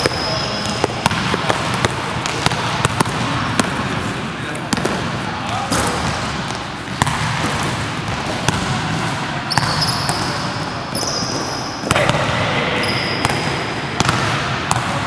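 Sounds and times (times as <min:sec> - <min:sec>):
basketballs bouncing on court: 0:00.0 - 0:15.0
short high squeaks: 0:10.9 - 0:11.7.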